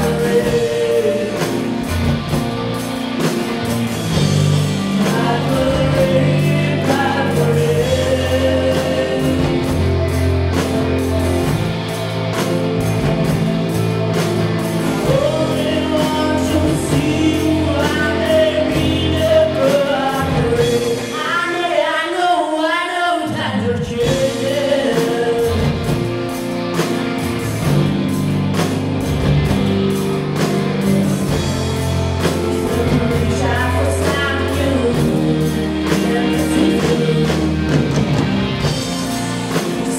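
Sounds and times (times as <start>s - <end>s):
women singing: 0.0s - 1.9s, 4.9s - 10.0s, 15.0s - 26.0s, 32.3s - 38.9s
live pop-rock band: 0.0s - 39.9s.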